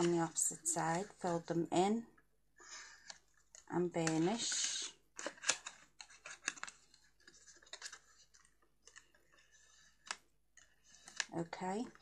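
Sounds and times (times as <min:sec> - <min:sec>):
paper scraping: 0:04.0 - 0:11.4.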